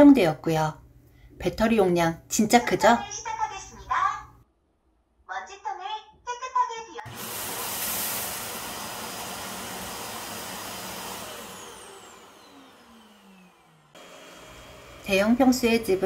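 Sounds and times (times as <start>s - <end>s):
suction motor running: 7.1s - 16.0s.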